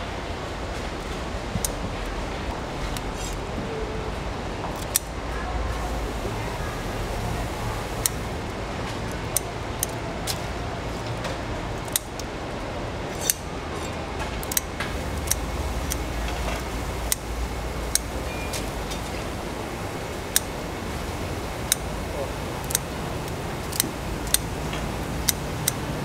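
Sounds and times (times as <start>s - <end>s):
low background hum: 0.0s - 26.0s
shears snipping shell: 4.6s - 5.2s, 7.8s - 12.3s, 13.1s - 19.2s, 20.0s - 21.9s, 22.6s - 25.9s.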